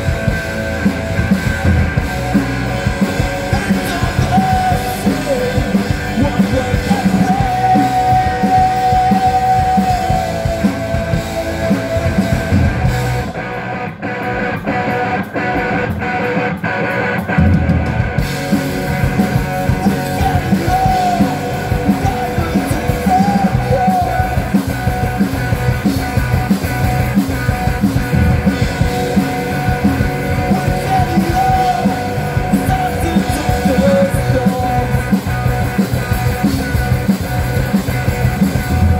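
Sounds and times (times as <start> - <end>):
punk rock band playing live: 0.0 - 38.9
shouted vocals: 3.4 - 12.5, 19.8 - 24.6.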